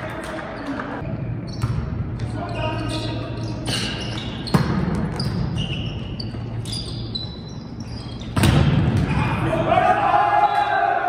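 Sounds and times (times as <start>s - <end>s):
sneaker squeaks on floor: 0.5s - 8.6s.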